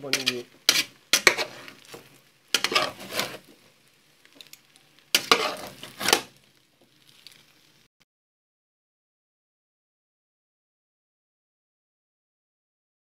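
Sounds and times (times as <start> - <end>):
metal ladle scraping pot: 0.1 - 3.5, 5.1 - 6.3.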